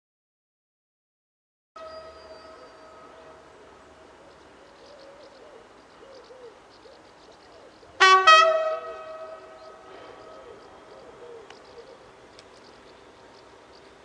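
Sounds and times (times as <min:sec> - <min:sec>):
two-tone train horn: 0:01.8 - 0:03.5, 0:08.0 - 0:10.3
faint railcar hum: 0:01.8 - 0:14.0.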